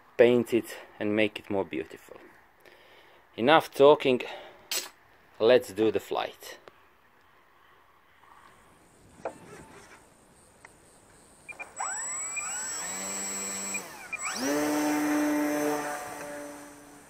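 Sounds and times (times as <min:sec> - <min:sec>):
electric motor propeller whine: 0:08.8 - 0:17.0.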